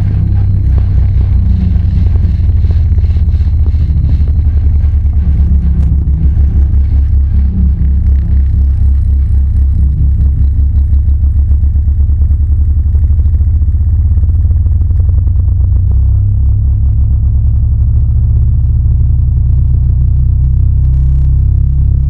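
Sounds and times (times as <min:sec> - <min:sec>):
subwoofer deep throbbing tone: 0:00.0 - 0:22.0.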